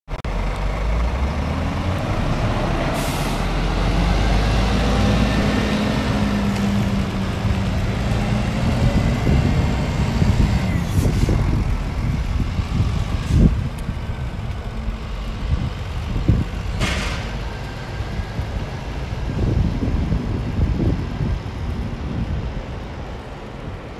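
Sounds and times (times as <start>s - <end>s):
diesel truck engine accelerating: 0.1s - 23.9s
air brake hisses: 2.9s - 3.5s.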